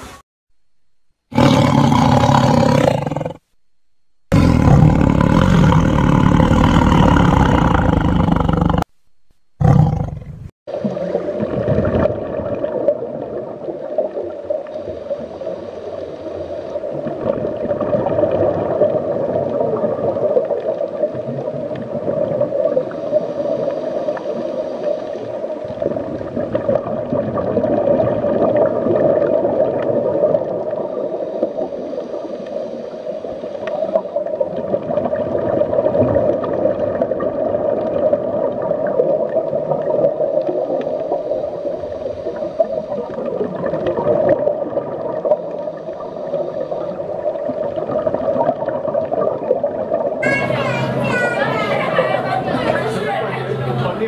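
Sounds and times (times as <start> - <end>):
underwater gurgling and bubbling: 9.6 - 52.6.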